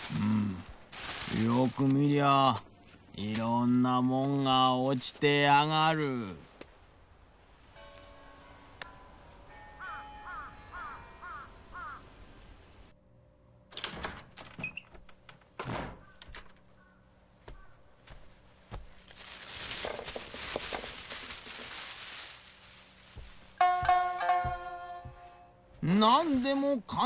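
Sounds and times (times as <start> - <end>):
junk rustling and clattering: 13.7 - 16.9, 18.8 - 25.3
knocks and thunks: 13.8 - 16.7.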